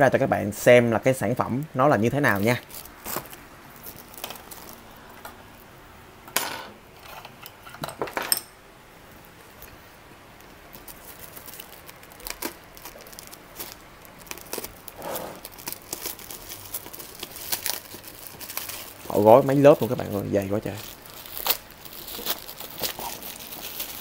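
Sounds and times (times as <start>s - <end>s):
plastic wrapping rustling: 2.0s - 5.7s, 9.1s - 24.0s
plastic clicks and crinkles: 2.6s - 5.4s, 10.4s - 24.0s.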